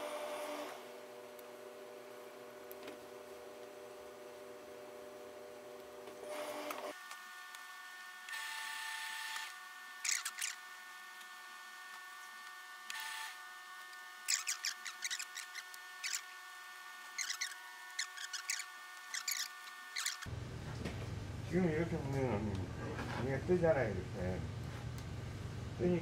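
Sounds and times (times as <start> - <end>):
faint steady hum: 0.0 - 26.0
scratchy crackling: 14.2 - 16.3, 17.1 - 20.3.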